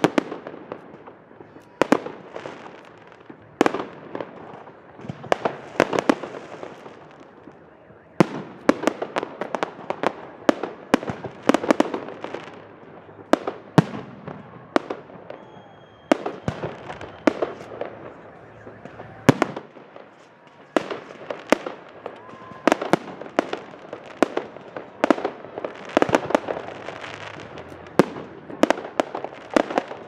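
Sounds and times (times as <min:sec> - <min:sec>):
firework crackling: 0:00.0 - 0:30.0.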